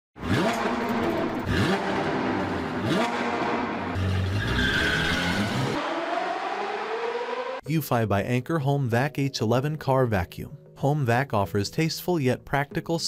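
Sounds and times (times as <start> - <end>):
car engine revving: 0.2 - 7.6
tyre squeal: 4.2 - 5.8.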